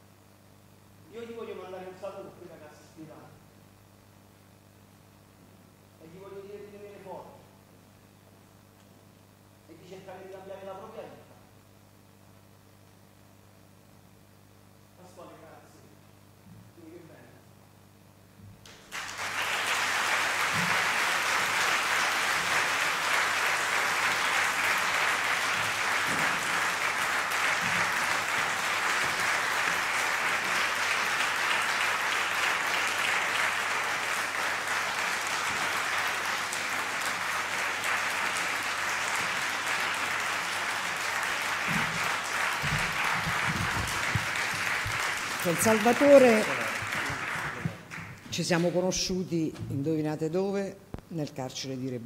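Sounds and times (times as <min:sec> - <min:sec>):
audience applauding: 0:18.7 - 0:48.8.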